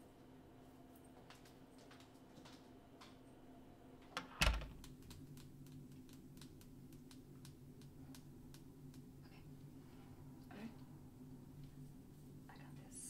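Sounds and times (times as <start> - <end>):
low steady hum: 0.0 - 13.0
door shutting with thud: 4.2 - 4.8.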